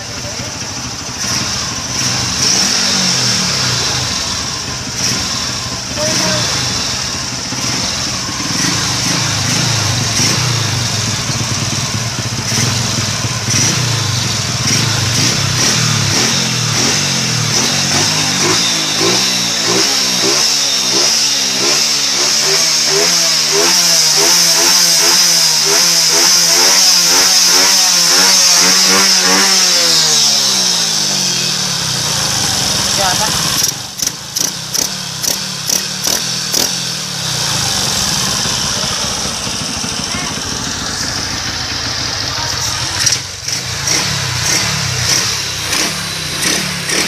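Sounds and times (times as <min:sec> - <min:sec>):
motorcycle engine revving: 0:00.0 - 0:47.0.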